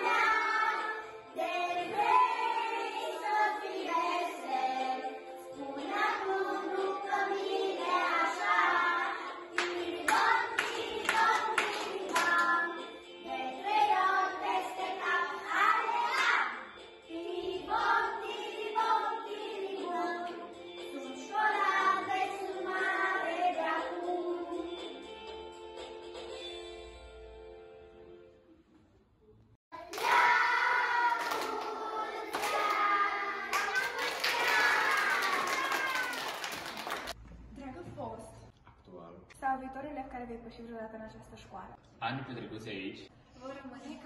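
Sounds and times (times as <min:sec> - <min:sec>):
children singing: 0:00.0 - 0:20.5, 0:29.8 - 0:36.3
hand claps: 0:09.5 - 0:12.6, 0:29.8 - 0:37.2.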